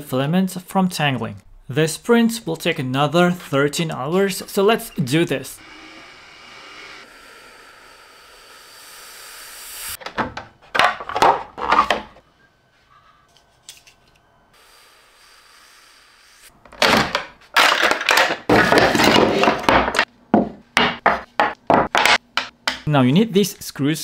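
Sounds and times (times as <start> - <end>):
plastic parts scraping and knocking: 10.0 - 12.2, 16.6 - 20.1.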